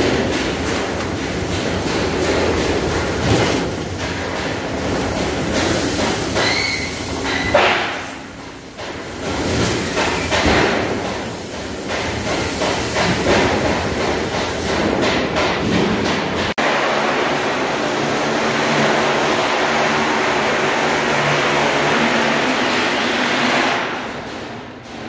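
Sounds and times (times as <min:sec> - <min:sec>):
metal knocks and thuds: 0:00.0 - 0:16.6
clattering machinery: 0:00.0 - 0:25.0.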